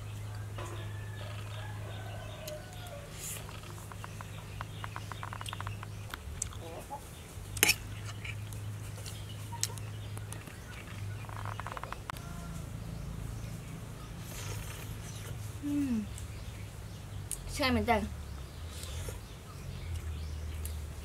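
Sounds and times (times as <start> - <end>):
chickens clucking: 0.2 - 15.6.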